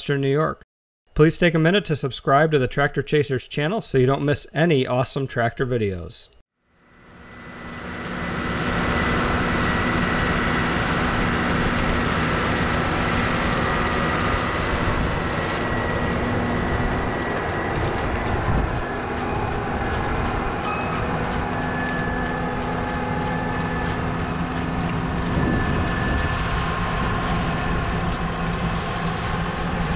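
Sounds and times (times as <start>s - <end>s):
tractor diesel engine under load: 7.0s - 29.9s.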